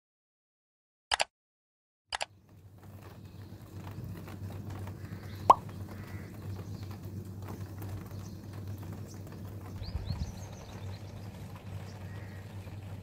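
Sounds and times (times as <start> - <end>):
raindrops dripping and tapping: 2.3 - 13.0
steady low rumble: 4.9 - 13.0
bird chirp: 5.1 - 13.0.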